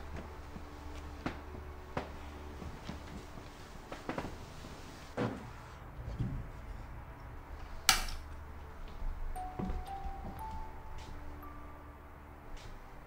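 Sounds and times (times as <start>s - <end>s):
knocks and rustles of movement: 0.0s - 7.4s.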